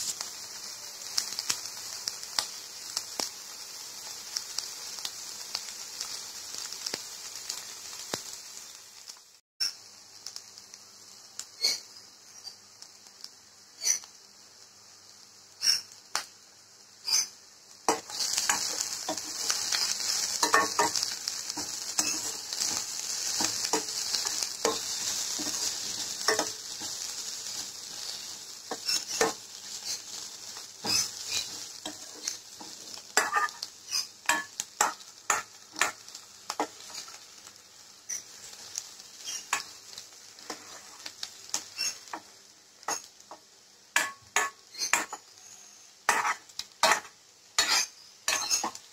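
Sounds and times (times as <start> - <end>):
onions sizzling in hot oil: 0.0 - 48.9
steel ladle scraping a pan: 17.0 - 17.3, 17.9 - 27.0, 28.7 - 30.0, 30.8 - 36.0, 40.4 - 41.0, 44.0 - 48.8.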